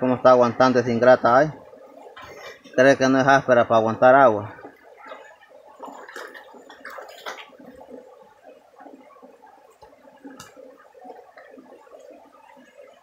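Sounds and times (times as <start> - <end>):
creek water gurgling: 0.0 - 13.0.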